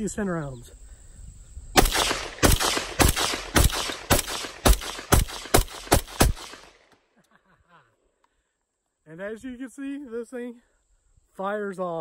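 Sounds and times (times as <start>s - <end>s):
pistol gunshots: 1.8s - 6.9s.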